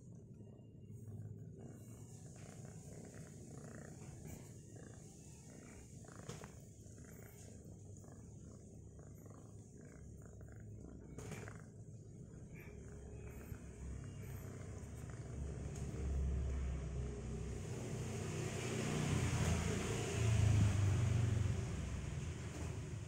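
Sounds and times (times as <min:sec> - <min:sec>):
faint low rumble: 0:00.0 - 0:23.0.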